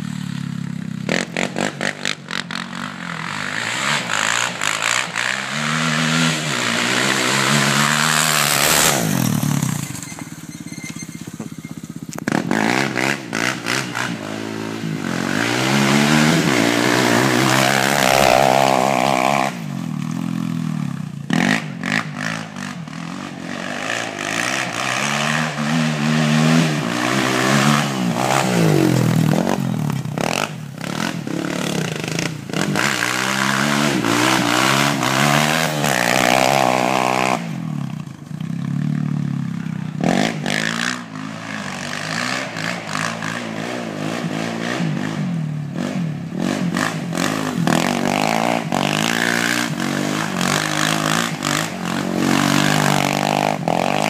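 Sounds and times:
quad engine revving: 0:00.0 - 0:54.0.

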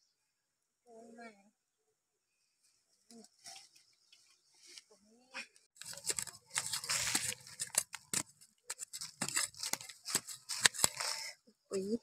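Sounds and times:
dry leaves crackling: 0:05.8 - 0:11.3.

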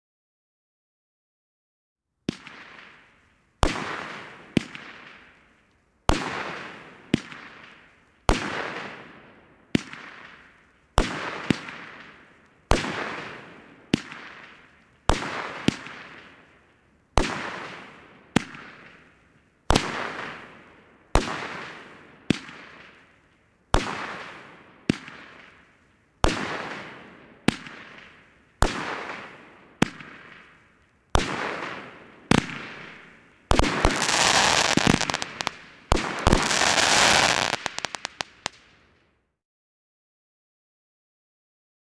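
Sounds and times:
firework bangs: 0:31.2 - 0:38.6.

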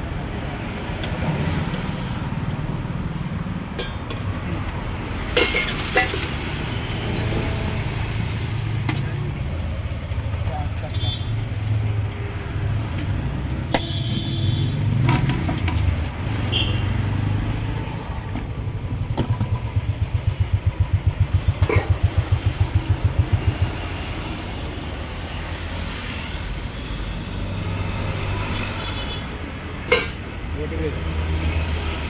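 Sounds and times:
street traffic: 0:00.0 - 0:32.0
spoons clinking on steel pots: 0:05.3 - 0:06.4, 0:29.9 - 0:30.2
vehicle engine throbbing: 0:18.7 - 0:24.6.

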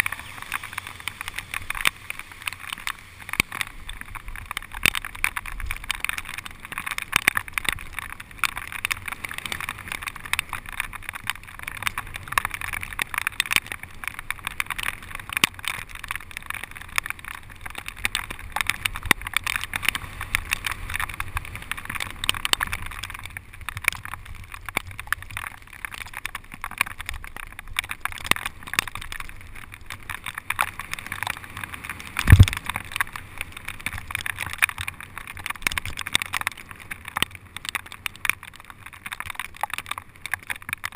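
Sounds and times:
tyres hissing on wet road: 0:00.0 - 0:05.2
small crackles and taps: 0:00.0 - 0:40.9.

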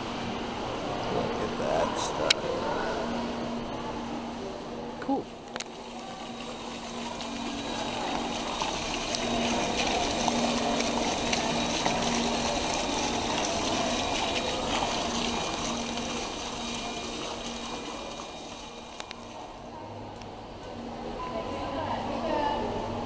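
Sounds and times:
fountain splashing into pool: 0:05.3 - 0:19.7.

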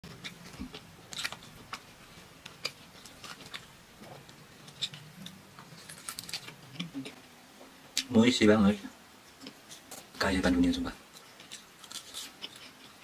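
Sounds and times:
crisp pastry crackling: 0:00.0 - 0:07.2, 0:11.1 - 0:13.0.

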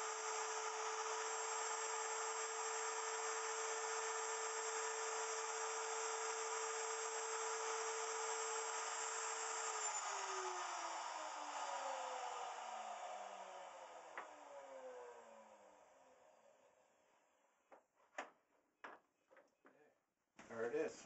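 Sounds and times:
router motor whine: 0:00.0 - 0:16.6.

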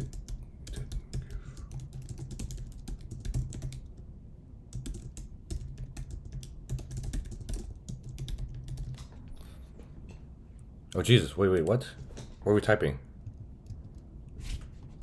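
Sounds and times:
computer keyboard typing: 0:00.0 - 0:04.0, 0:04.7 - 0:09.3, 0:13.2 - 0:14.0.

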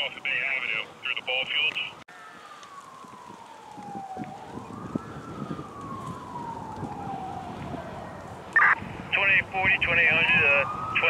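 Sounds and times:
siren wailing: 0:02.1 - 0:11.0.

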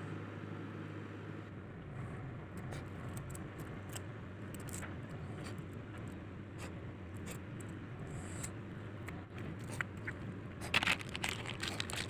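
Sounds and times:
steady low hum: 0:00.0 - 0:12.0
net scraping and rustling: 0:10.7 - 0:12.0.

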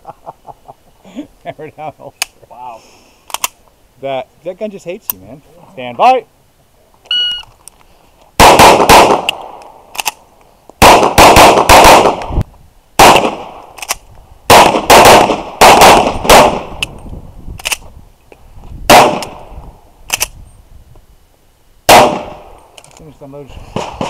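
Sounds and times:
pistol shots: 0:08.4 - 0:10.1, 0:10.8 - 0:12.3, 0:13.0 - 0:13.6, 0:14.5 - 0:16.8, 0:18.9 - 0:19.4, 0:21.9 - 0:22.5.

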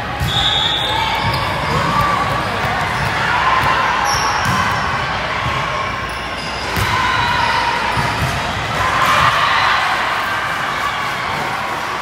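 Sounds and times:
shoe squeaks: 0:00.2 - 0:03.1, 0:04.0 - 0:04.6, 0:06.0 - 0:06.7
volleyballs bouncing and hit: 0:01.1 - 0:05.8, 0:06.6 - 0:07.1, 0:07.9 - 0:09.5.

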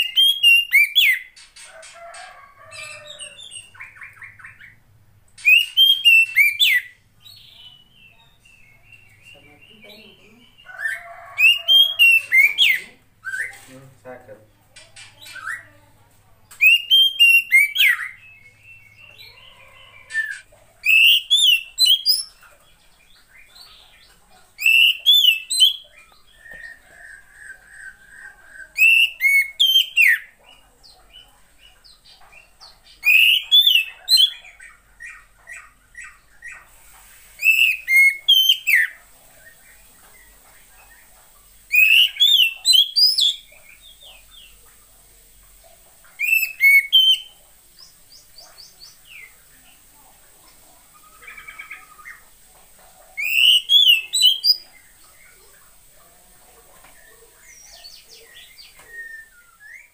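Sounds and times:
soft bird chatter: 0:00.0 - 0:59.9
bird calling in fast bursts: 0:41.7 - 0:43.5, 0:46.2 - 0:47.4.

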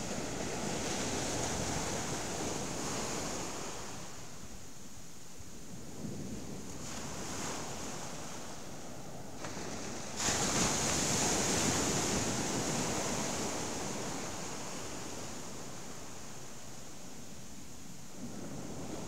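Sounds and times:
waves breaking on beach: 0:09.4 - 0:16.6.

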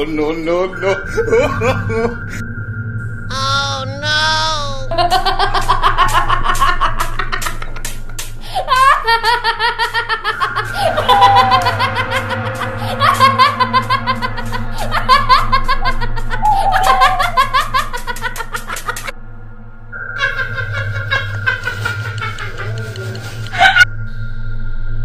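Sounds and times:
background music: 0:00.0 - 0:02.4, 0:03.3 - 0:19.1
shrill woman's cackle: 0:04.9 - 0:19.1, 0:20.2 - 0:23.8.

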